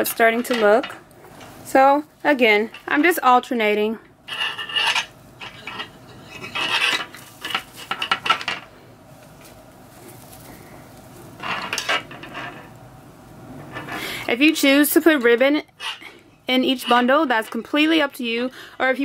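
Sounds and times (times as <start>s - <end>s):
metal wire frame clinking: 4.3s - 8.6s
plastic mesh rustling: 6.6s - 12.8s.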